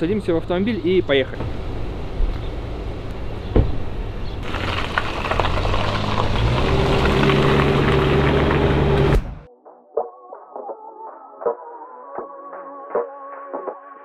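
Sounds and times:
car engine humming: 0.4s - 9.5s
tyres hissing on wet road: 4.4s - 9.2s.

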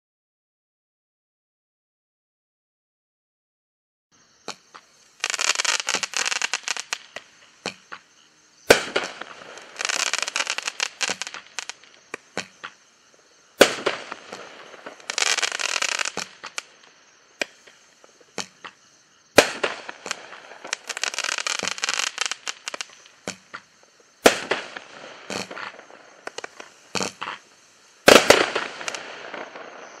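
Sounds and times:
small pops: 4.4s - 8.1s, 8.7s - 12.8s, 13.6s - 18.8s, 19.4s - 27.4s
firework crackling: 4.4s - 30.0s
firework launch reports: 28.0s - 30.0s.

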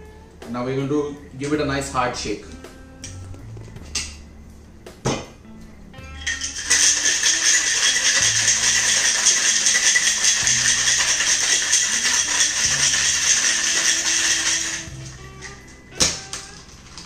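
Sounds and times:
ice rattling in metal shaker: 6.1s - 15.6s.

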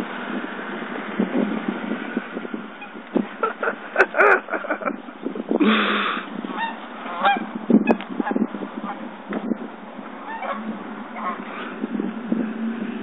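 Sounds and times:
geese honking: 6.5s - 9.0s, 10.2s - 11.6s.

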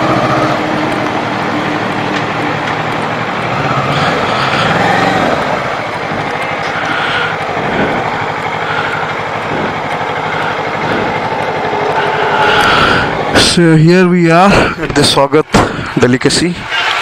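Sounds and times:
motorcycle engine idling: 0.0s - 17.0s.

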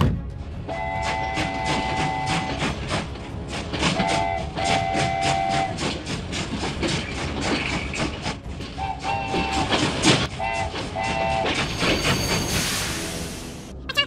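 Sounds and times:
train wheels clattering on rails: 0.0s - 13.2s
multi-tone train horn: 0.6s - 3.0s, 3.7s - 6.0s, 8.7s - 11.9s.

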